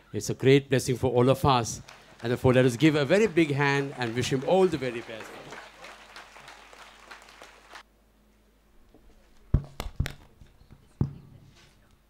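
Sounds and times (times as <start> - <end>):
crowd applause: 1.4 - 7.8.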